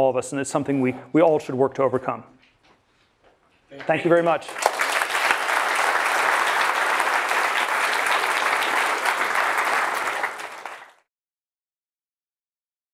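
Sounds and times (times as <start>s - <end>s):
audience applauding: 4.0s - 11.1s.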